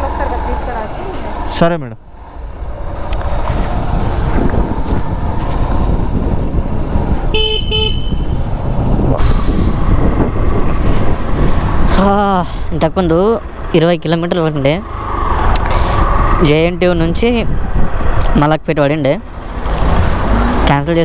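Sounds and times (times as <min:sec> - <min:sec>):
wind buffeting microphone: 0:02.3 - 0:13.5, 0:15.0 - 0:18.4
vehicle horn beeps: 0:07.3 - 0:08.3.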